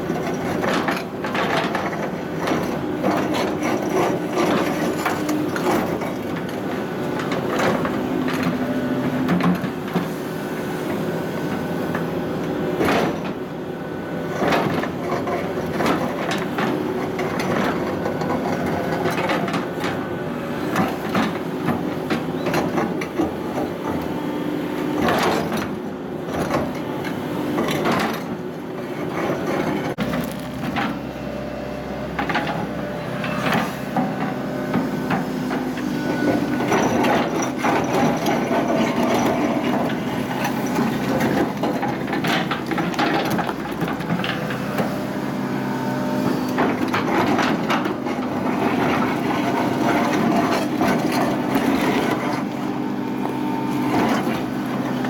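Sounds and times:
excavator engine drone: 0:00.0 - 0:55.0.

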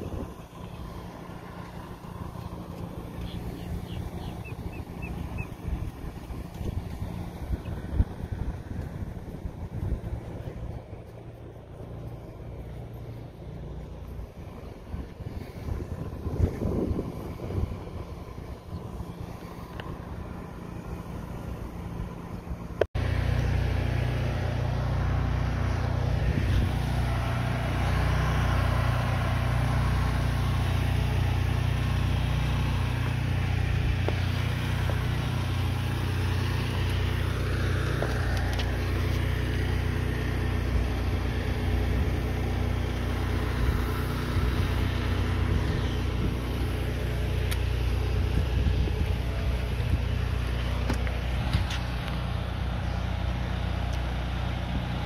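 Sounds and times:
engine running steadily: 0:00.0 - 0:55.0.

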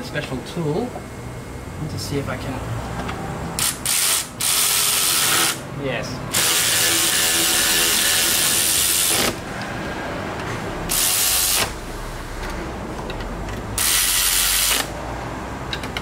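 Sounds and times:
electric ratchet running: 0:03.6 - 0:05.7, 0:06.3 - 0:09.6, 0:10.9 - 0:11.9, 0:13.5 - 0:15.0.

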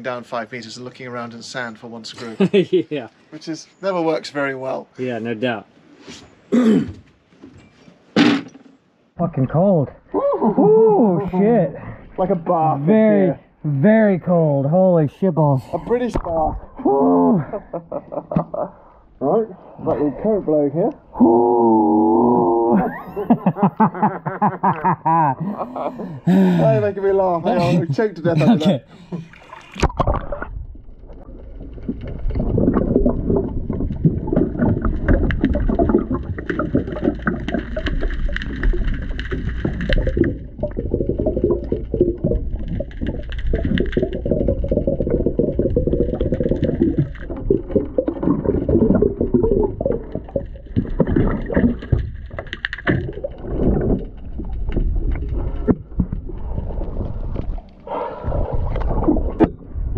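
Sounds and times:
muffled underwater water movement: 0:28.9 - 0:59.9
bubbles: 0:29.0 - 0:59.9.

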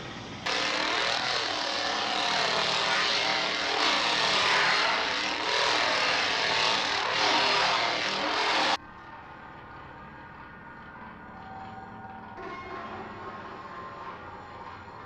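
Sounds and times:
motor revving: 0:00.5 - 0:08.8.

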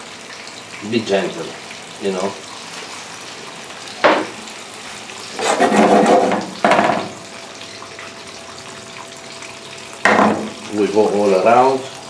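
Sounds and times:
spinach sizzling in pan: 0:00.0 - 0:08.5
pan scraping and clattering: 0:05.3 - 0:07.2.

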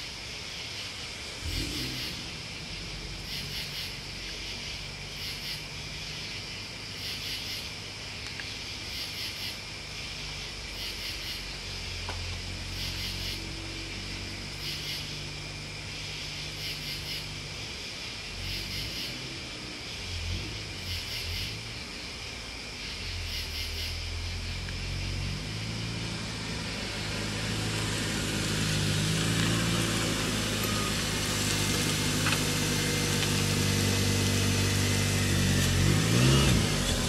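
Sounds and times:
crickets and insects trilling: 0:00.0 - 0:37.0
low rumble: 0:01.3 - 0:05.0.

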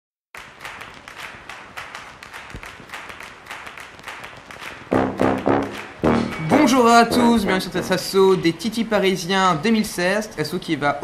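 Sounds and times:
sharp taps pattering: 0:00.4 - 0:06.5
swing music with brass: 0:04.9 - 0:08.1.

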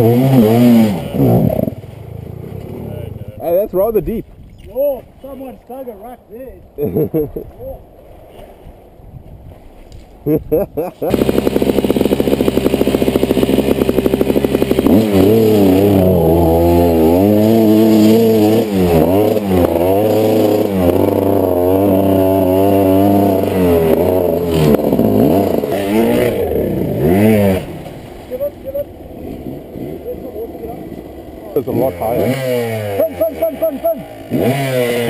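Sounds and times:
dirt bike engine revving: 0:00.0 - 0:03.4, 0:11.0 - 0:35.0.

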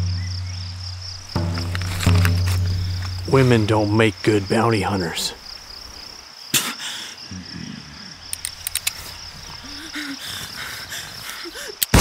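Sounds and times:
forest ambience: 0:00.0 - 0:12.0
insects trilling: 0:00.0 - 0:12.0
sharp clicks: 0:08.3 - 0:09.2.

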